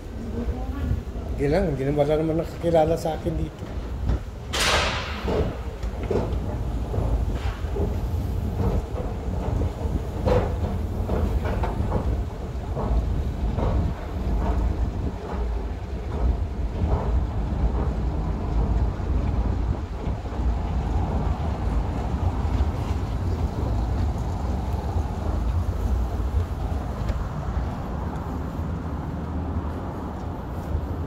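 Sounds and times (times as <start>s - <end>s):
wind buffeting microphone: 0.0s - 31.0s
knocks: 4.0s - 14.6s.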